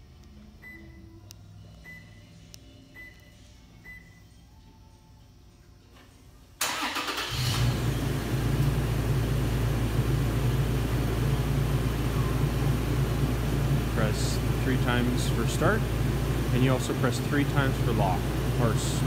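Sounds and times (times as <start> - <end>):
engine cranking: 6.6 - 7.8
engine idling: 6.6 - 19.0.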